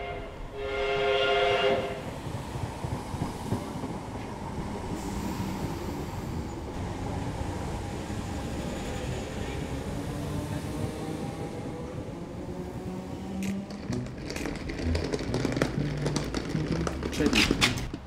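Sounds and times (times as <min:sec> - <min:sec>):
train horn blast: 0:00.0 - 0:02.1
train rumbling along rails: 0:00.0 - 0:18.0.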